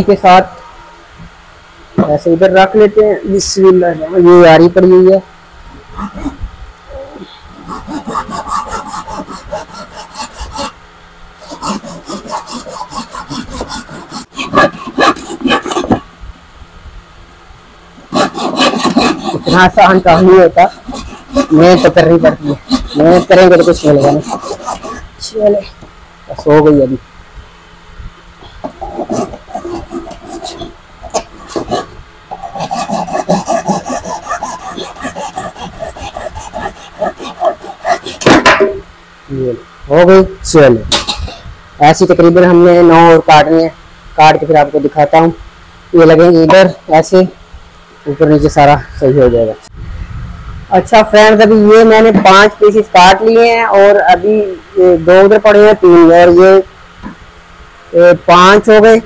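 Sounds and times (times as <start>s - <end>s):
handsaw cutting wood: 5.9s - 6.4s, 7.5s - 10.8s, 11.4s - 16.0s, 18.1s - 25.1s, 28.6s - 38.5s.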